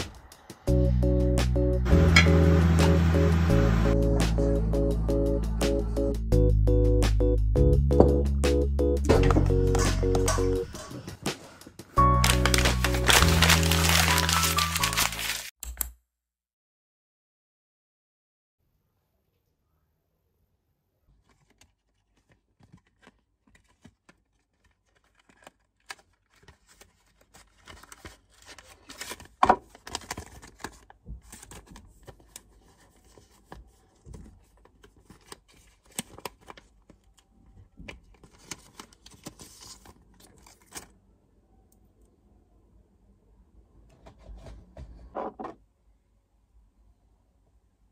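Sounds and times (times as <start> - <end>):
paper rustling and crinkling: 9.8 - 15.5, 21.1 - 41.0.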